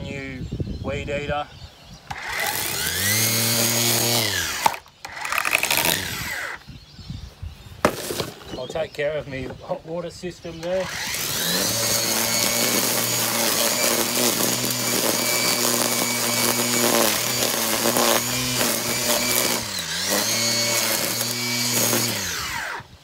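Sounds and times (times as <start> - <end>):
line trimmer cutting grass: 2.1 - 6.7, 10.5 - 23.0.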